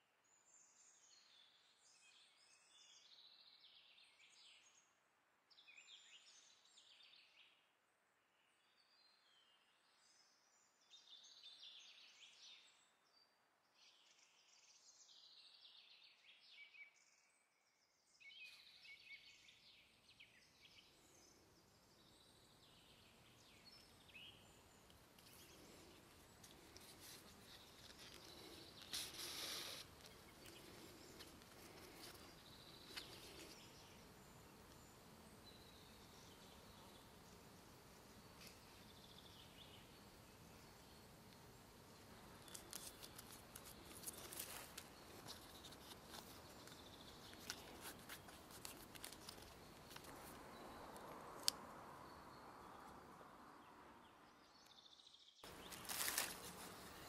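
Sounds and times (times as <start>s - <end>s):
room hiss: 21.5s - 53.7s
small clicks and rustles: 24.8s - 33.7s, 42.4s - 51.6s, 55.5s - 57.0s.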